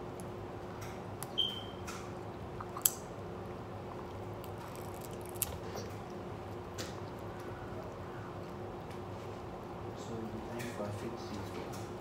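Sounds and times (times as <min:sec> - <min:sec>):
squishy eating noises: 0:02.5 - 0:09.6
crab shells cracking: 0:02.6 - 0:03.1, 0:04.0 - 0:09.0.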